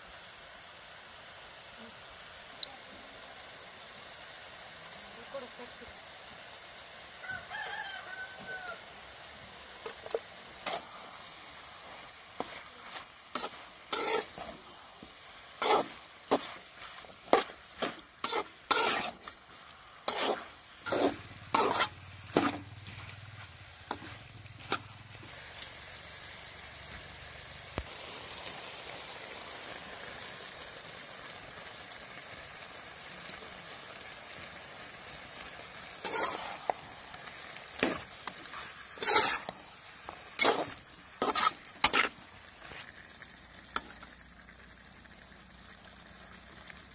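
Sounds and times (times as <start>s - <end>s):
chicken sizzling in pan: 0.0s - 46.9s
metal spatula scraping pan: 11.8s - 14.6s, 15.6s - 19.4s, 20.0s - 23.1s, 23.9s - 24.9s, 36.0s - 36.8s, 37.8s - 42.8s.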